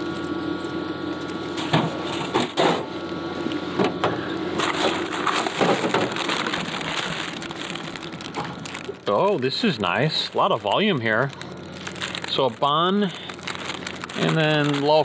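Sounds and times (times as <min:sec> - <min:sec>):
steady hum: 0:00.0 - 0:15.0
plastic bag crinkling: 0:04.6 - 0:15.0.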